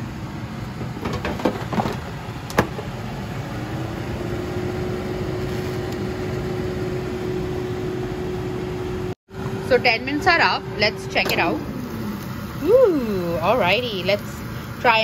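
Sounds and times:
fan motor humming: 0.0s - 15.0s.

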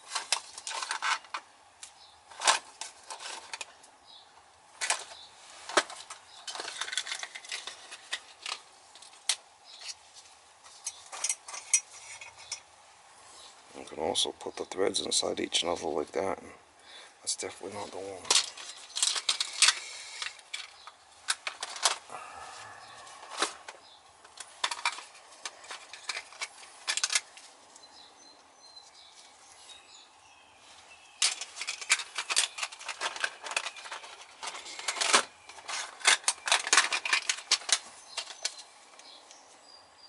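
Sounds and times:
small metal parts clinking: 4.8s - 10.0s, 10.8s - 12.7s, 18.2s - 22.0s, 24.3s - 27.3s, 31.2s - 38.7s.

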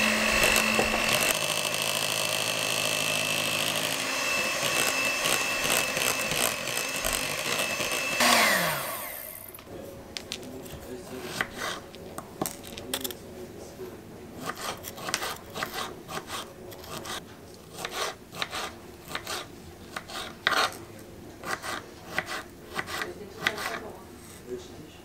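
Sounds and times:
knife cutting on wooden board: 0.0s - 1.4s, 4.4s - 8.6s, 10.6s - 12.0s, 14.4s - 23.9s.

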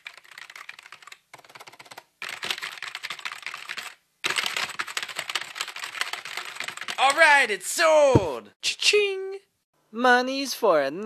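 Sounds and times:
rapid keyboard typing: 0.0s - 7.4s.

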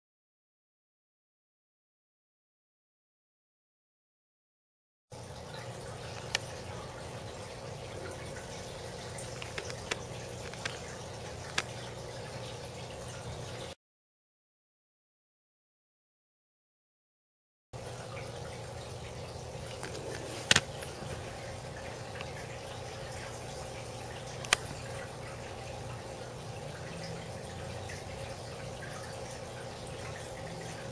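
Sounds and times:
aquarium water trickling: 5.1s - 13.8s, 17.8s - 30.9s.

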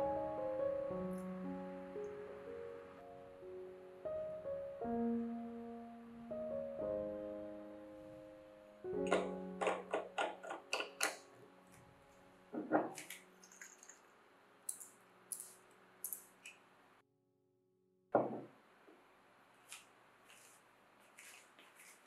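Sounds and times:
glass bottle knocking on wood: 18.2s - 18.5s.

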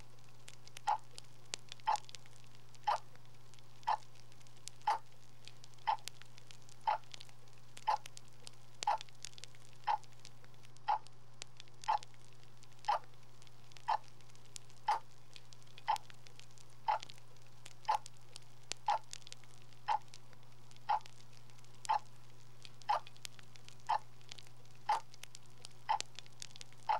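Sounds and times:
low constant hum: 0.0s - 26.9s
clock ticking: 0.8s - 1.0s, 3.8s - 4.0s, 4.8s - 5.0s, 5.8s - 6.1s, 6.8s - 7.2s, 7.8s - 8.1s, 8.8s - 9.0s, 9.8s - 10.1s, 10.8s - 11.1s, 11.8s - 12.1s, 13.8s - 14.1s, 18.9s - 19.1s, 19.9s - 20.1s, 20.9s - 21.2s, 21.8s - 22.1s, 23.9s - 24.1s, 24.9s - 25.1s.

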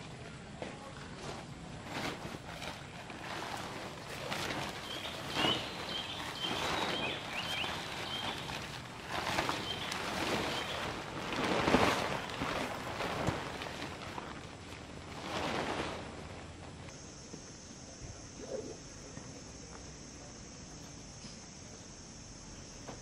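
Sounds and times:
tent fabric rustling and crinkling: 1.0s - 17.3s
tent fabric flapping: 1.1s - 16.9s.

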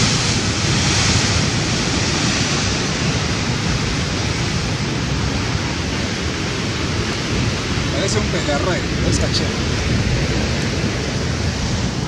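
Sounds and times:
sea surf washing against rocks: 0.0s - 12.0s.

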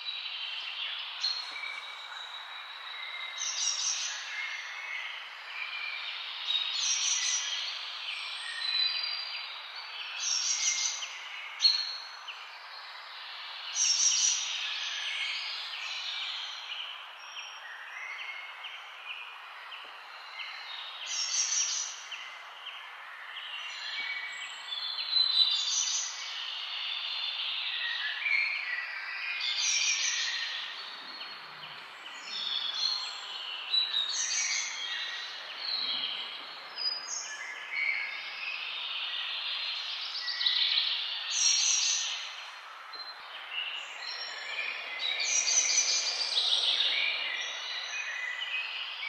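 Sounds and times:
birds chirping and calling: 29.4s - 49.0s.

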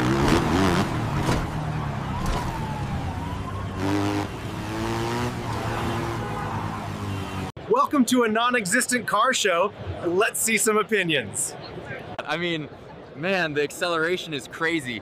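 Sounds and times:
dirt bike engine revving: 0.0s - 1.6s, 3.8s - 7.5s
low traffic hum: 0.0s - 15.0s.

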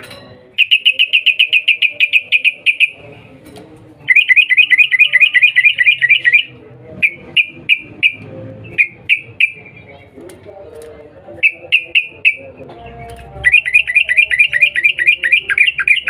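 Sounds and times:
bulbul chattering call: 0.6s - 3.0s.

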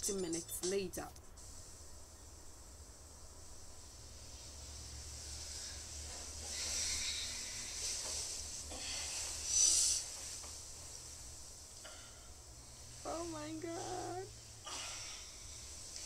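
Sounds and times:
steady low hum: 0.0s - 16.0s
sleeping person breathing noisily: 4.5s - 10.4s.

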